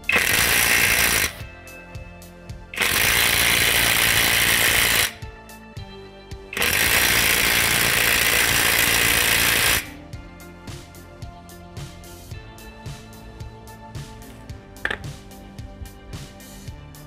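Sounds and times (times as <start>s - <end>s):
impact driver hammering: 0.0s - 1.4s, 2.8s - 5.1s, 6.6s - 9.9s, 14.2s - 15.1s.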